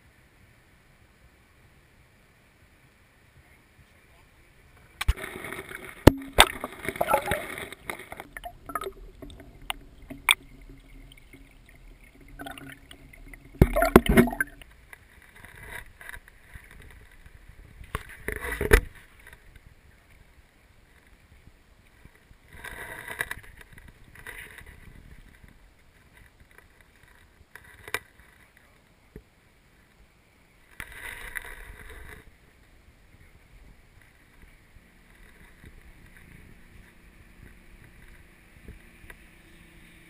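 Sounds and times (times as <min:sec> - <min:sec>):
water splashing: 0:04.9 - 0:14.9.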